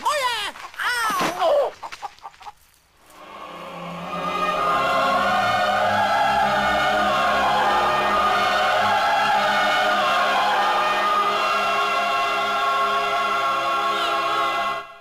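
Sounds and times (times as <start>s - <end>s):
choral film score: 3.0s - 15.0s.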